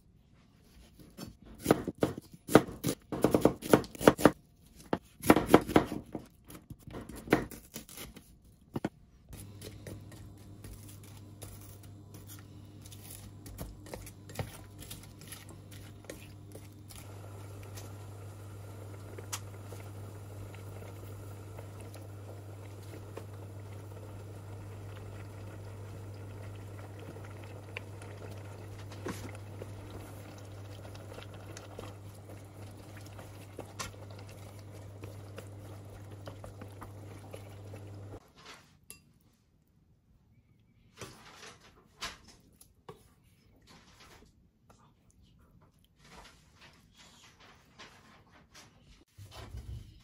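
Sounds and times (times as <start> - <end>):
broth simmering and bubbling: 9.4 - 38.2
hob low hum: 9.4 - 38.2.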